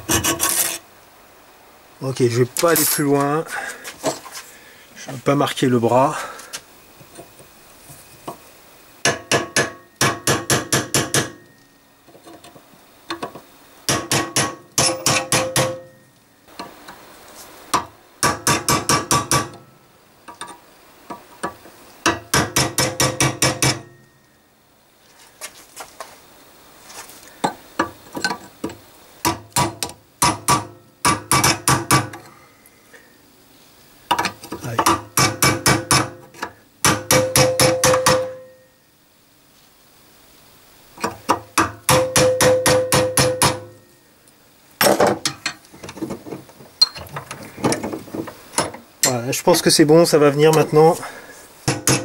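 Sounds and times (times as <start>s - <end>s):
hammer striking chisel on metal: 9.0s - 11.5s, 13.9s - 16.0s, 17.7s - 19.6s, 22.0s - 24.0s, 29.2s - 32.3s, 34.1s - 36.2s, 36.8s - 38.6s, 41.3s - 43.8s, 51.7s - 52.0s.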